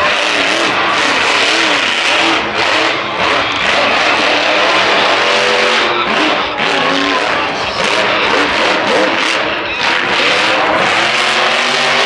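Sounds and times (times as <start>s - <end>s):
truck engine revving hard: 0.0s - 12.0s.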